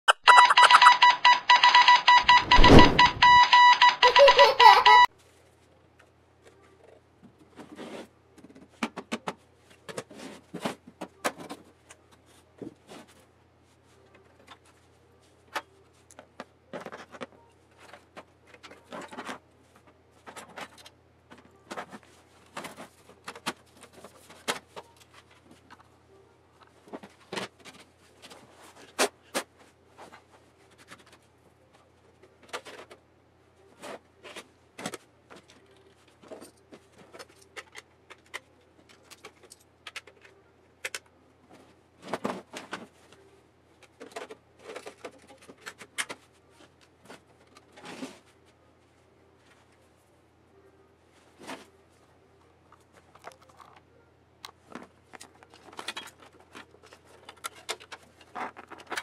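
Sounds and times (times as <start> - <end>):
clicks and knocks handling metal parts: 52.7 - 59.0.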